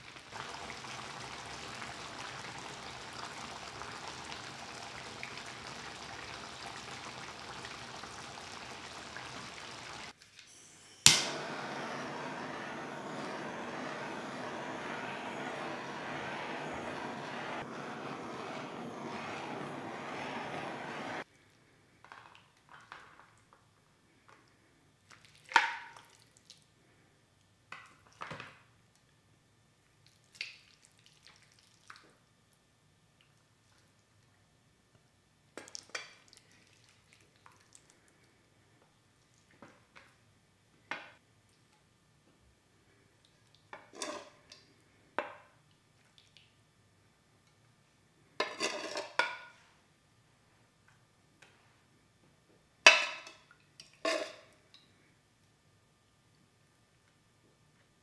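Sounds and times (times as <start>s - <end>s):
sauce bubbling in a pan: 0.0s - 10.2s, 11.3s - 21.3s, 30.0s - 32.2s, 35.6s - 38.4s
kitchen torch flame hissing: 0.3s - 21.3s
soft wet squelches: 29.8s - 34.5s, 35.6s - 40.2s, 45.6s - 46.7s.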